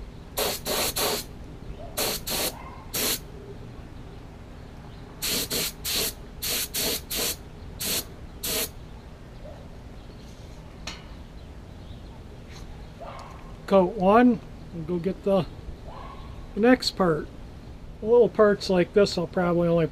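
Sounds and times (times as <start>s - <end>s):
paint spray gun hissing: 0.4s - 1.3s, 2.0s - 3.2s, 5.2s - 8.7s.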